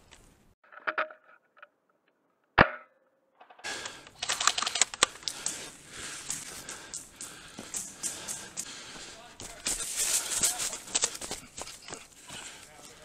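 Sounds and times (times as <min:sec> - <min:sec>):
rapid clicks: 0:03.7 - 0:08.8.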